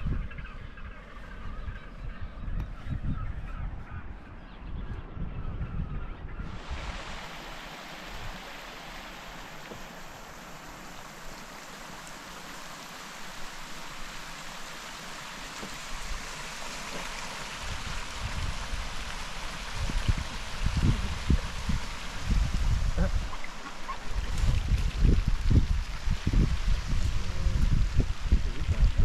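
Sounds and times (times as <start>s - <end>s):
stream rushing over rocks: 6.5s - 29.0s.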